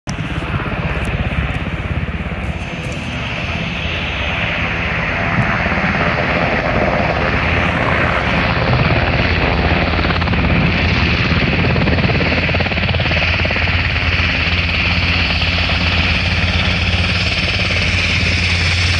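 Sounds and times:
helicopter rotor beating: 0.1s - 18.9s
turbine engine whine: 0.1s - 18.9s.

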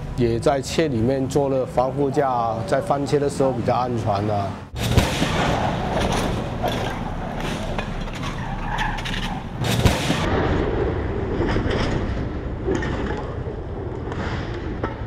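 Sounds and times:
sharp loud bang: 4.8s - 8.2s, 9.2s - 10.9s
tyres skidding on tarmac: 5.4s - 9.6s.

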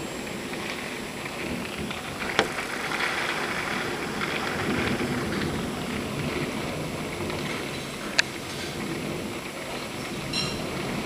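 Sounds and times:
gusting wind: 0.0s - 11.0s
rain: 0.0s - 11.0s.

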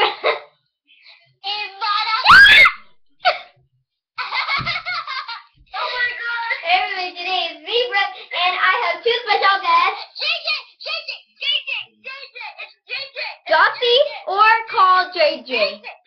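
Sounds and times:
girl shrieking: 2.1s - 2.8s
girl laughing and squealing: 2.2s - 2.8s.

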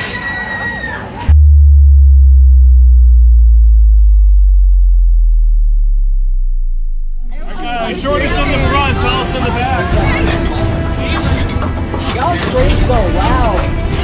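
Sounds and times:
deep sub-bass boom: 1.3s - 8.0s.

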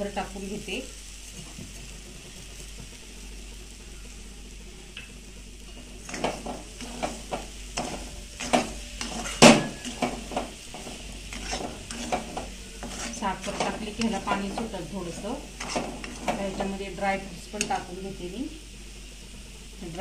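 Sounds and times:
faint low sizzle: 0.0s - 20.0s
spatula scraping metal pan: 6.0s - 16.8s.

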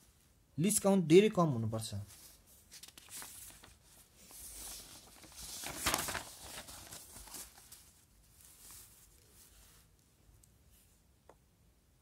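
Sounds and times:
paper rustling and scratching: 2.1s - 9.9s.

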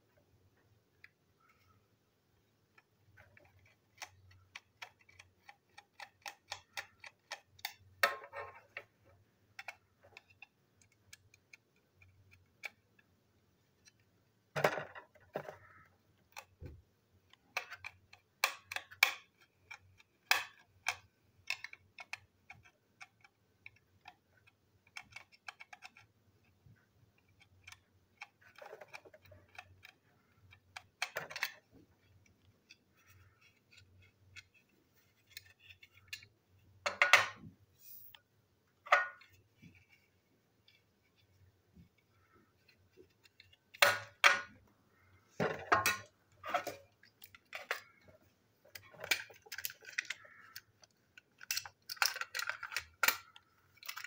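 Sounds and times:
plastic clicks and scrapes: 0.9s - 54.0s
plastic clattering: 45.3s - 54.0s.

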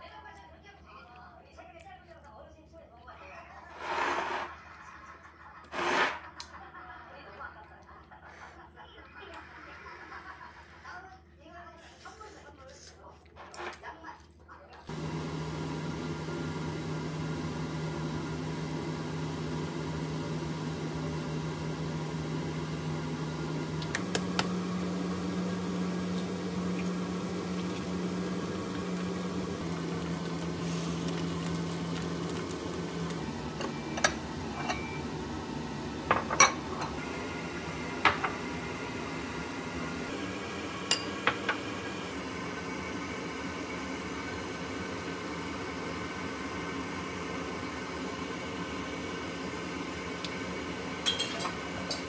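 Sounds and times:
mechanical kitchen hum: 0.0s - 52.0s
utensils clinking on dishes: 33.6s - 35.0s, 40.9s - 41.6s, 51.0s - 52.0s.

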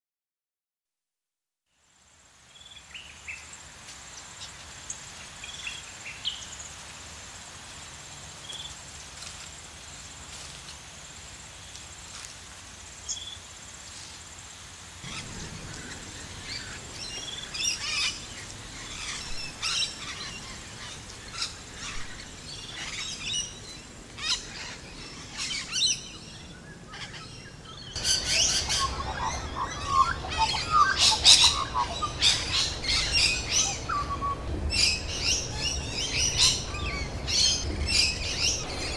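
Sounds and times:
wild birds chirping: 2.5s - 12.2s, 12.8s - 38.9s
low background rumble: 15.0s - 38.9s.

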